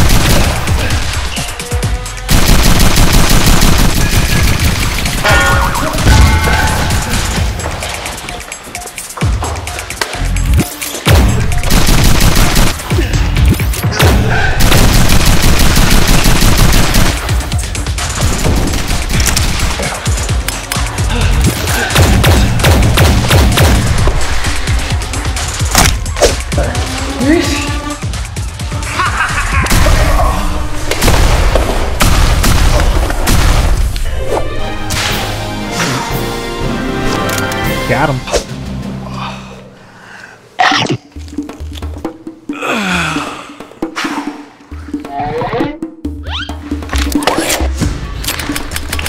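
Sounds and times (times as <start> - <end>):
loud action music: 0.0 - 38.9.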